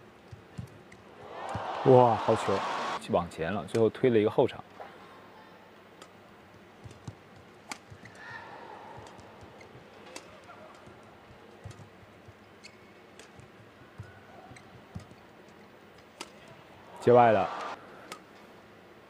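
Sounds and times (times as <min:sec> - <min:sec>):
shoes squeaking on court floor: 0:09.0 - 0:15.6.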